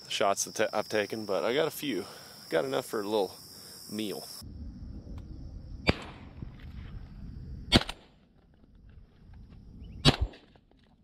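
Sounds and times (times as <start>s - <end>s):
faint insect buzz: 0.0s - 7.6s
shotgun shots: 5.8s - 6.4s, 7.7s - 8.2s, 10.0s - 10.5s.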